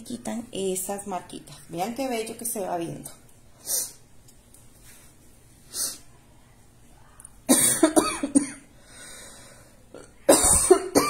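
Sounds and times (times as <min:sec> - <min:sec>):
woman coughing: 0:07.5 - 0:08.7, 0:10.3 - 0:11.0.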